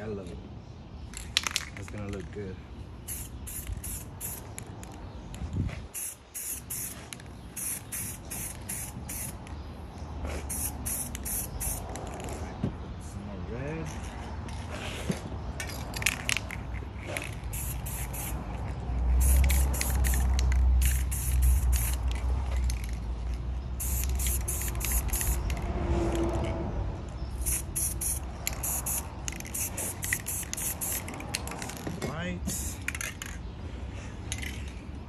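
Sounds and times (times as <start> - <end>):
spray-paint can hissing: 3.0 - 4.6, 5.9 - 9.4, 10.4 - 12.0, 17.4 - 18.5, 19.1 - 22.2, 23.8 - 25.7, 27.3 - 31.1, 32.5 - 33.0.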